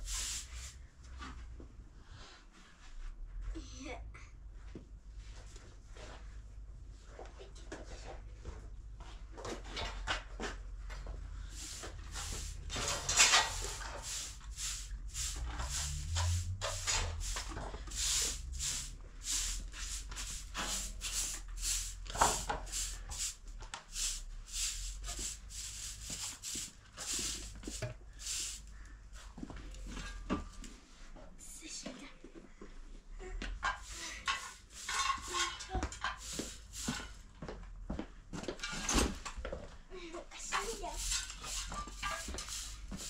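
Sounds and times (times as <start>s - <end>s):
broom sweeping concrete floor: 0.0s - 3.2s, 11.3s - 31.2s, 33.6s - 37.4s, 38.5s - 39.2s, 40.3s - 43.0s.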